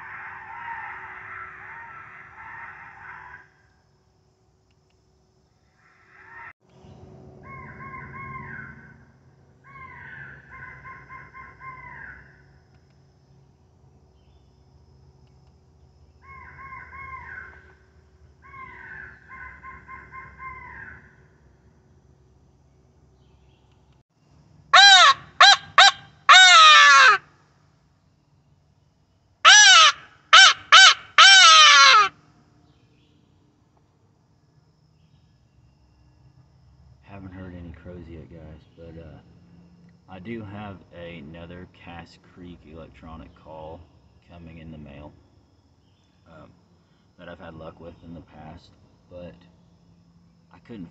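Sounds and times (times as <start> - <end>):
recorded crow caws: 0.0 - 3.8, 5.7 - 6.6, 7.4 - 12.6, 16.1 - 21.4, 24.7 - 27.5, 29.4 - 32.3.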